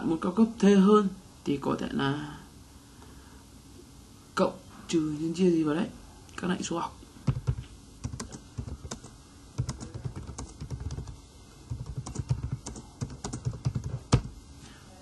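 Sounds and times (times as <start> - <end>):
keyboard typing: 7.3 - 14.4.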